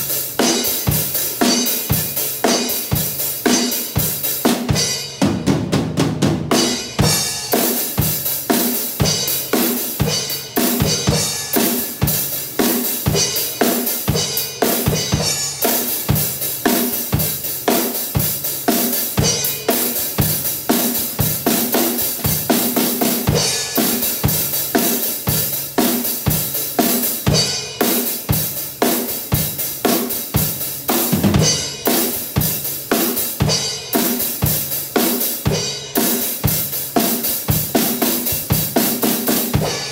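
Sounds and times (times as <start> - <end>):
heavy metal drum beat: 0.0 - 39.9.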